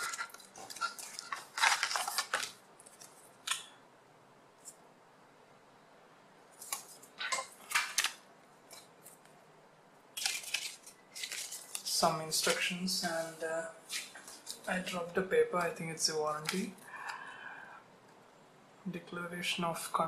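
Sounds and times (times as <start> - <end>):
paper leaflets rustling: 0.0 - 3.7, 6.5 - 9.3, 10.2 - 15.0.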